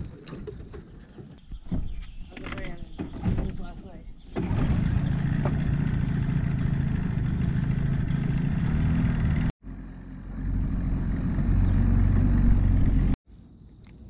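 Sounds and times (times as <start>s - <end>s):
outboard motor running: 4.4s - 9.5s.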